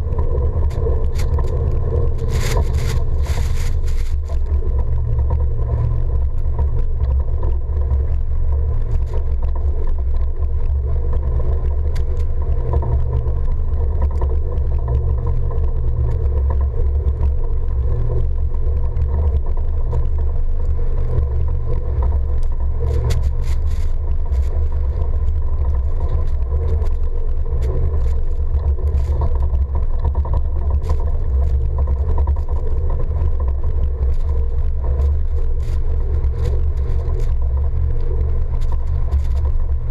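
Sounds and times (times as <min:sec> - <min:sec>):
truck driving through snow: 0:00.0 - 0:07.0.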